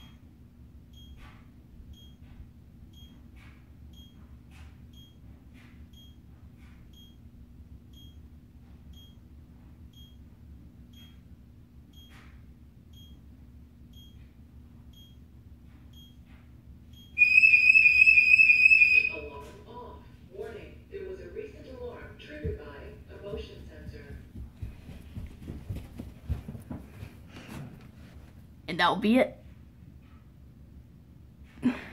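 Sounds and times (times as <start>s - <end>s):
alarm siren warbling: 17.2s - 19.4s.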